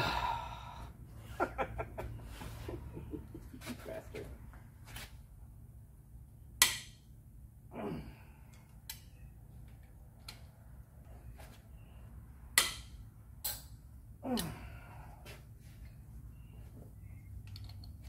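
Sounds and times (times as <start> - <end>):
person exhaling: 0.0 - 1.0, 7.7 - 8.7, 14.2 - 15.4.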